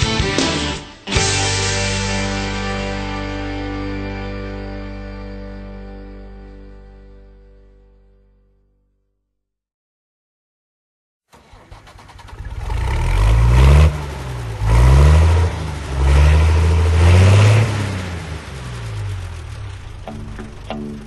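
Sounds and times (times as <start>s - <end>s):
engine revving: 11.4s - 21.0s.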